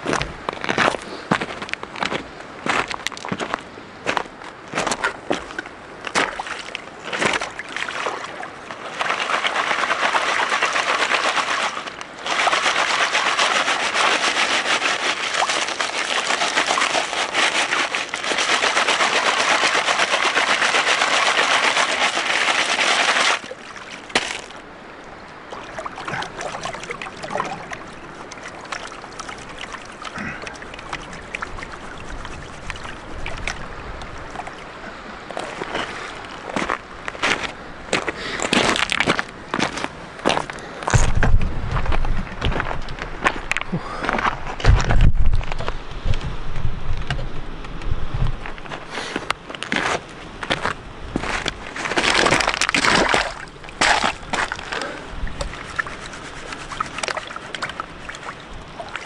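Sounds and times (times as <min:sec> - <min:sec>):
water splashing: 0:05.3 - 0:37.4, 0:51.2 - 0:59.0
gravel rattling in a plastic sieve: 0:09.0 - 0:23.6, 0:51.2 - 0:54.6
stones clicking: 0:20.8 - 0:24.6, 0:51.4 - 0:54.8.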